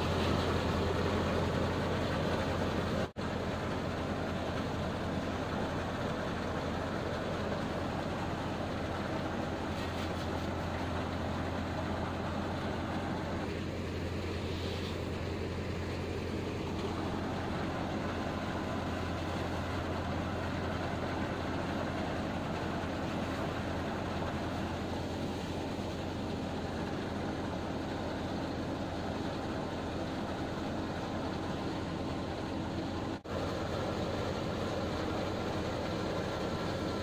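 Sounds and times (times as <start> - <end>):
rattling whooshing churn: 0.0 - 3.2
threshing machine hum: 0.0 - 37.0.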